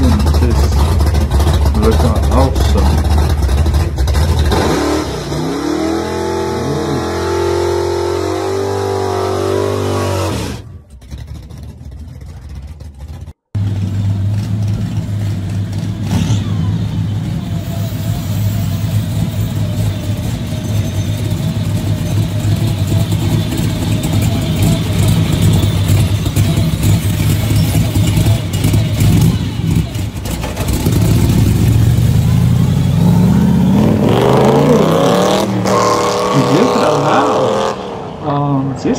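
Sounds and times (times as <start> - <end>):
car engine running unevenly: 0.0 - 4.5, 11.9 - 33.7
car engine revving: 0.0 - 38.9.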